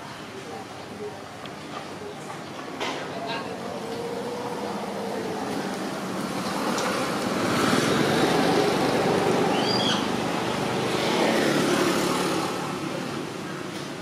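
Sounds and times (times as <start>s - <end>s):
vehicle passing: 3.1s - 13.4s.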